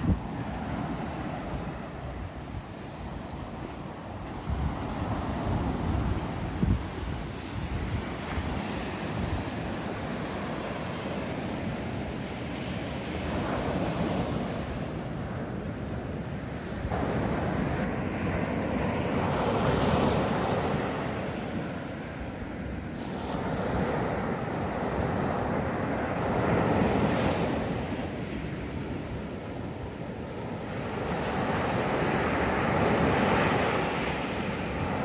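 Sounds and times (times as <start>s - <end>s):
sea waves breaking on beach: 0.0s - 35.0s
wind buffeting microphone: 0.0s - 35.0s.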